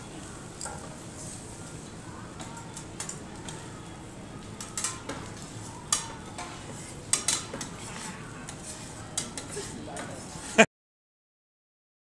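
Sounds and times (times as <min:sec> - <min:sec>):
metal spatulas clacking on griddle: 0:04.6 - 0:05.1, 0:07.1 - 0:07.7.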